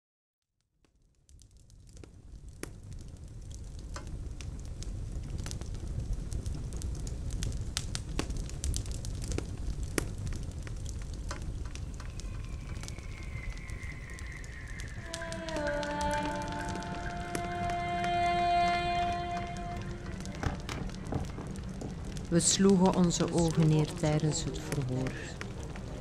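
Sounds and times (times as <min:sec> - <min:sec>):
fire crackling: 0:00.8 - 0:26.0
faint falling high tone: 0:11.8 - 0:21.0.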